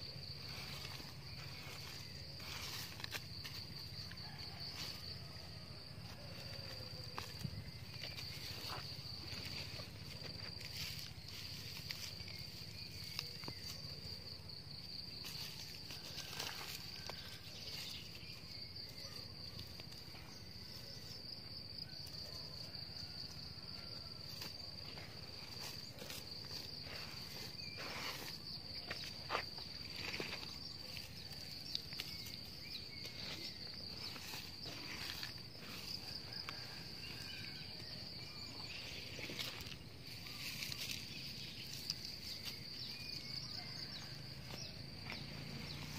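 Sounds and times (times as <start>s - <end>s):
hands scraping dry soil: 0.0s - 5.2s, 24.3s - 37.4s
insect trilling: 0.0s - 45.9s.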